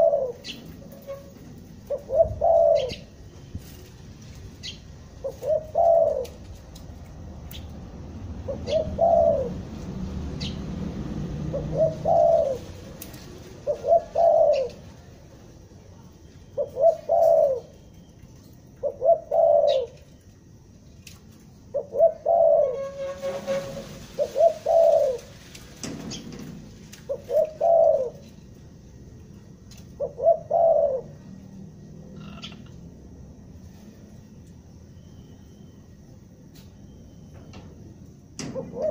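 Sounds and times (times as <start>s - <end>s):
dove cooing: 0.0s - 3.2s, 4.6s - 6.5s, 8.4s - 9.7s, 11.4s - 15.1s, 16.6s - 17.8s, 18.8s - 20.1s, 21.6s - 25.4s, 27.1s - 28.6s, 29.9s - 32.7s, 38.4s - 38.9s.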